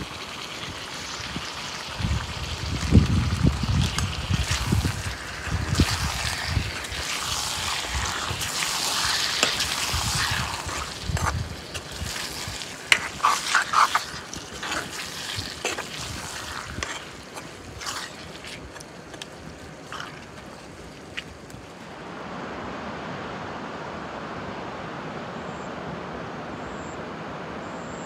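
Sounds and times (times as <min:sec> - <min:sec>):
chicken sizzling in pan: 0:00.0 - 0:20.7
ladle scraping pan: 0:05.7 - 0:19.3.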